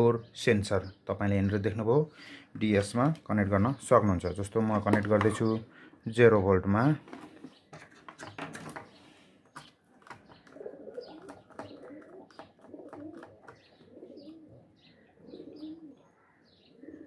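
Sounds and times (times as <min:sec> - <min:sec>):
pigeons cooing: 0:07.1 - 0:17.0.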